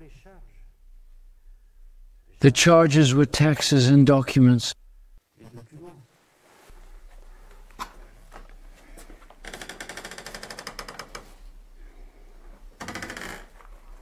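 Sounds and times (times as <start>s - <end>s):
wardrobe door creaking: 9.2s - 11.6s, 12.8s - 14.0s.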